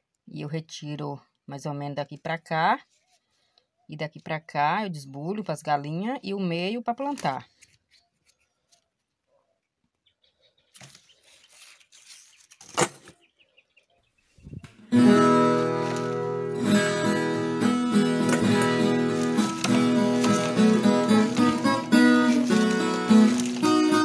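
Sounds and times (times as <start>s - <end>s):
strummed acoustic guitar music: 14.8s - 24.0s
corn cobs knocking and rustling: 15.0s - 24.0s.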